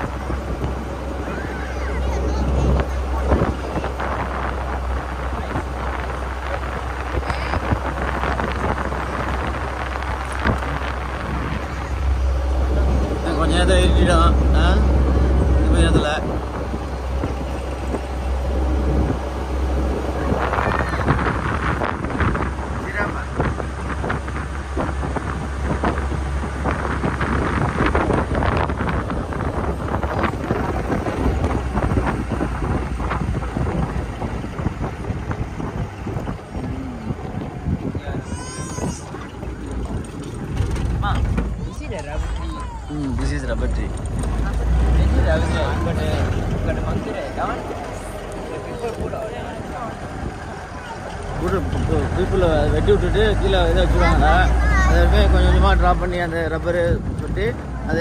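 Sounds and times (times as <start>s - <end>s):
vehicle and road rumble: 0.0s - 58.0s
wind buffeting microphone: 0.0s - 58.0s
knocks and rattles: 39.0s - 45.0s.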